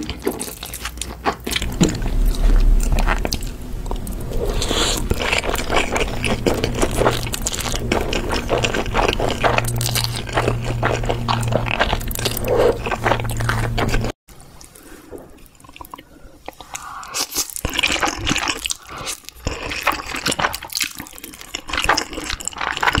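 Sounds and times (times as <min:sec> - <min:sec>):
slurping and chewing noodles: 0:00.0 - 0:23.0
steady low hum: 0:01.5 - 0:14.1.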